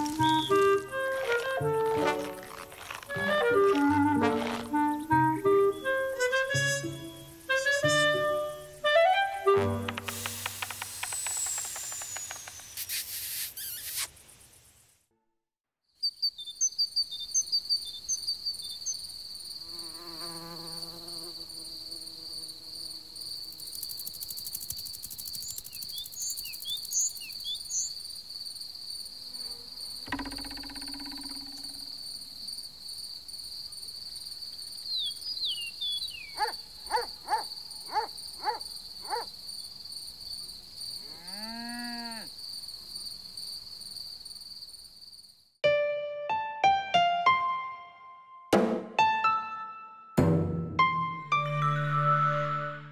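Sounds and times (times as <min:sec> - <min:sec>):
insect trill: 0:00.0 - 0:15.0, 0:16.0 - 0:45.6
short chirps: 0:10.0 - 0:14.1.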